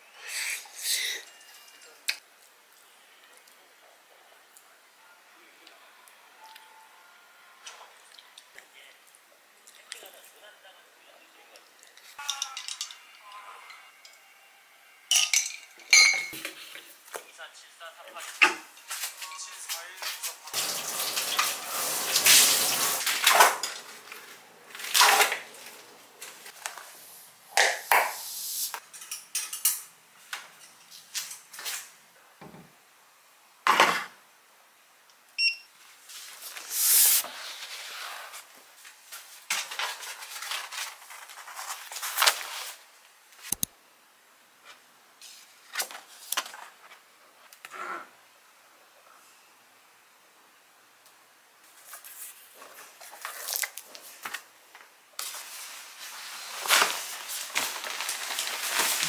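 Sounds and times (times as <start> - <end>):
clinks and knocks of handled things: 12.2 - 13.2
running tap water: 20.5 - 23.3.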